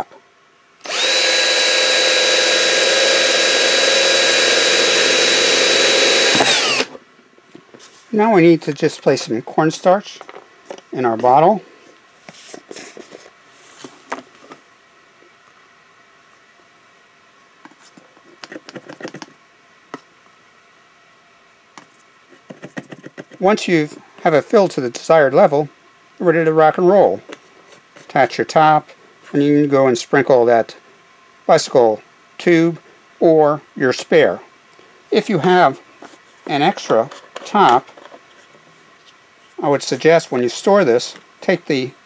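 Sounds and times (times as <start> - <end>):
cordless drill whining: 0.8 - 7.0.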